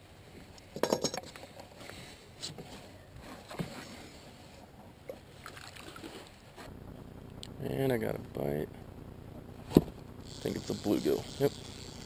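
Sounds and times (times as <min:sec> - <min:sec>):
knocks and rattles of handling: 0:00.6 - 0:01.8.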